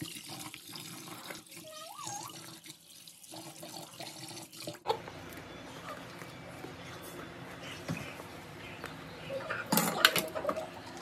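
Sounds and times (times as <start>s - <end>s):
tap water running into pot: 0.0s - 4.8s.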